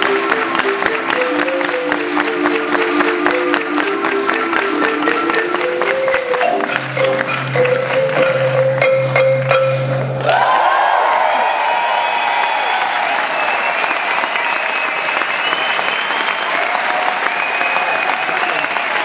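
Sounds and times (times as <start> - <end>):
marimba: 0.0 - 10.4.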